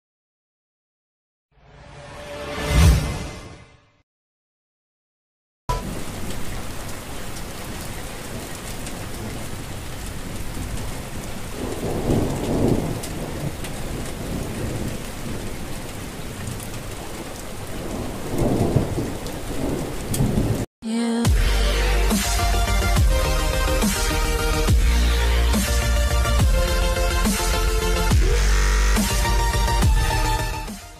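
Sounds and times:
steady rain falling: 5.7s - 20.7s, 21.5s - 30.7s
thunder rolling: 5.7s - 20.7s.

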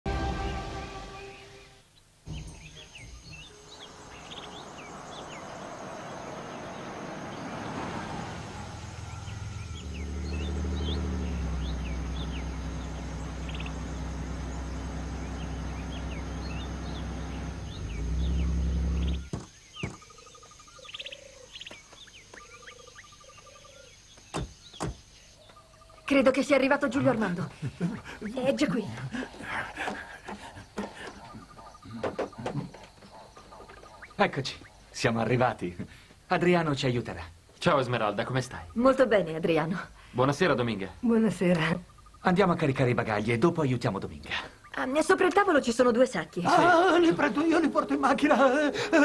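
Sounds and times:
car engine humming: 0.1s - 20.8s, 46.5s - 49.0s
birds chirping: 0.1s - 49.0s
car driving over grass: 2.3s - 20.3s.

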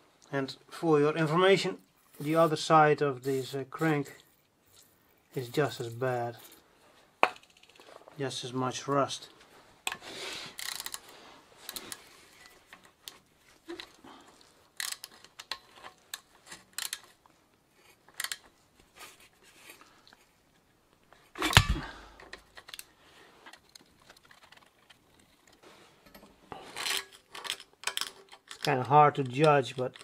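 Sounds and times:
loud metal clunk: 21.4s - 22.1s.

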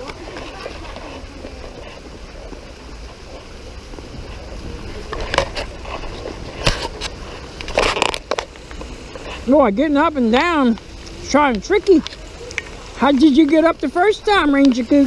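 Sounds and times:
footsteps scraping on rock: 0.0s - 9.6s
small waterfall rushing: 0.0s - 15.0s.

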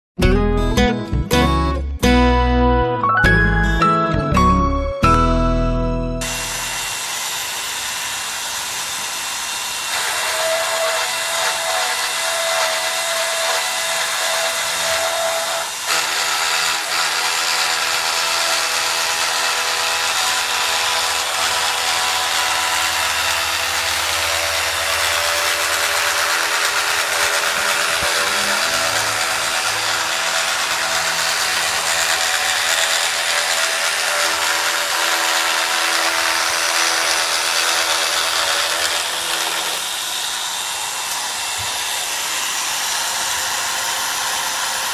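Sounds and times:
pipe cutting machine motor whine: 5.1s - 11.2s, 20.5s - 38.3s, 39.8s - 43.8s.

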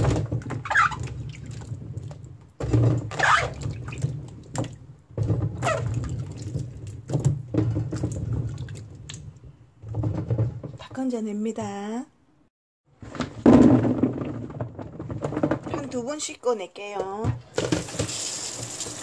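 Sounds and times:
water splashing and dripping: 0.0s - 10.2s, 17.6s - 19.0s.

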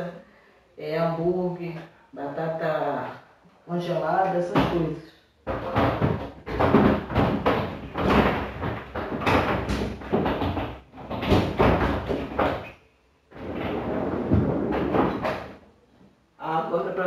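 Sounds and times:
plastic baskets clattering: 5.5s - 15.6s.

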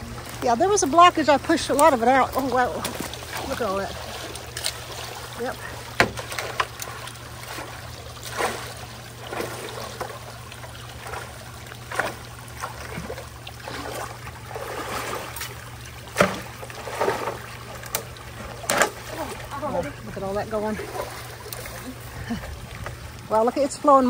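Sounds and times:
floodwater rushing: 0.0s - 24.0s
tool splashing and scraping debris: 0.1s - 10.3s, 10.9s - 19.6s.

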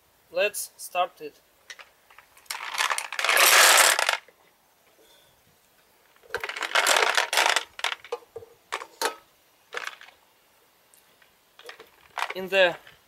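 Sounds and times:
milling balls rattling in a tank: 1.7s - 4.3s, 6.2s - 8.9s, 9.7s - 10.2s, 11.6s - 13.0s.

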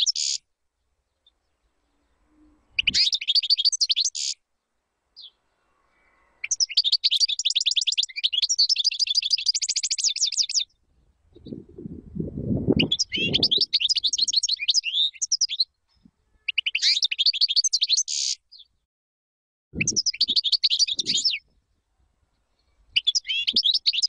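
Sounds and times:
goldfinch twittering: 12.8s - 15.6s, 19.8s - 21.4s, 23.0s - 24.0s.

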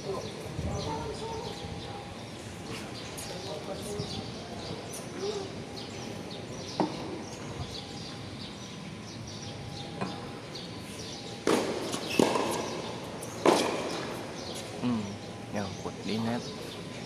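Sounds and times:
birds chirping: 0.0s - 17.0s
steady background noise: 0.0s - 17.0s.

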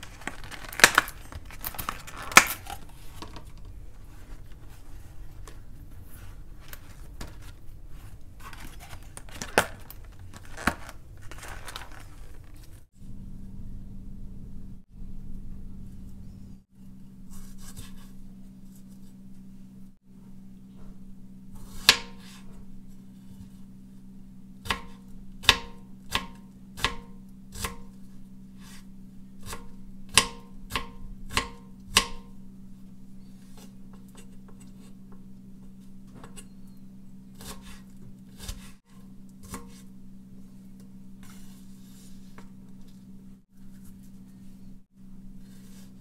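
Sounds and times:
low hum: 0.0s - 46.0s
knife chopping on cutting board: 24.6s - 27.9s.

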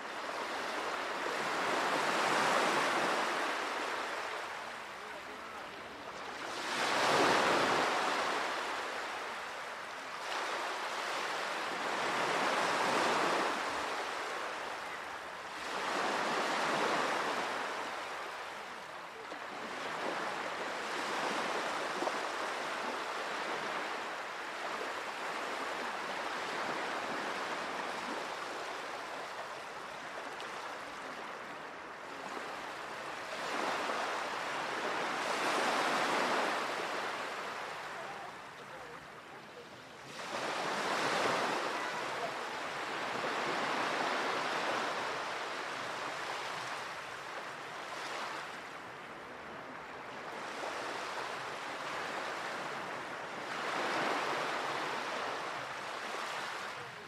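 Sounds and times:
sea waves washing onto shore: 40.1s - 49.0s.

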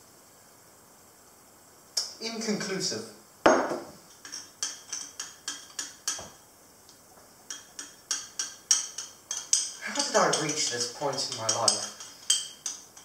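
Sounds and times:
spoon clinking against glass: 4.1s - 6.3s, 7.5s - 13.0s.

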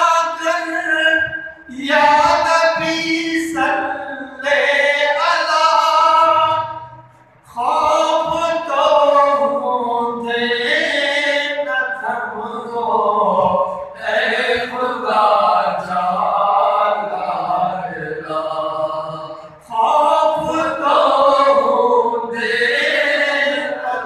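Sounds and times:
man singing unaccompanied: 0.0s - 24.0s.

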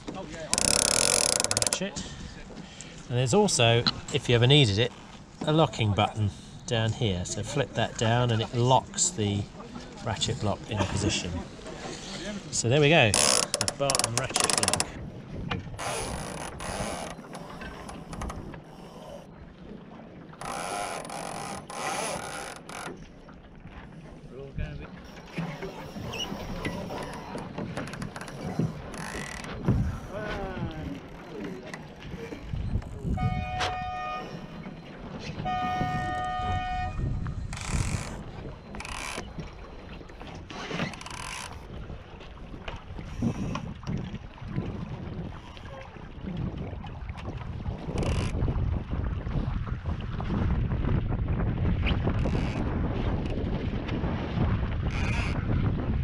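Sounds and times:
rushes of wind and water: 0.0s - 56.0s
wind rumble on microphone: 14.6s - 17.0s, 25.9s - 31.1s, 32.0s - 40.5s, 41.5s - 56.0s
steady horn blast: 33.2s - 34.5s, 35.4s - 37.2s.

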